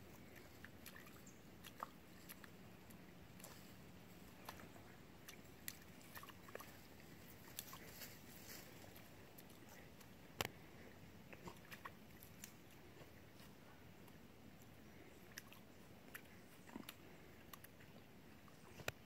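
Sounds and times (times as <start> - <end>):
puppy gnawing with crunchy clicks: 11.3 - 13.5, 14.1 - 19.0.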